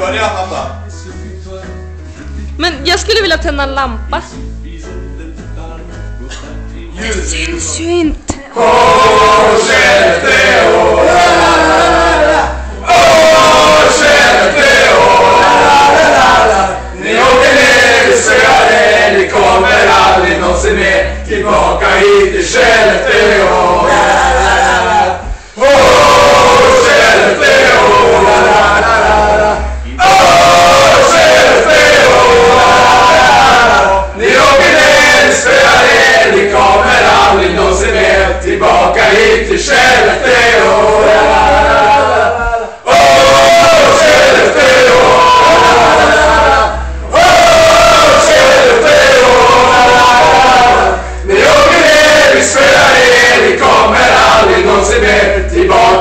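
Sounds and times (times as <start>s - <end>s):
men singing a chant together: 8.5s - 56.0s.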